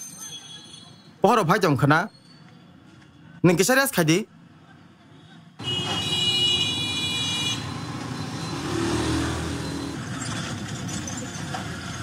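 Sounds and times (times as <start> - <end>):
road traffic noise: 0.0 - 12.0
vehicle horn: 5.6 - 7.7.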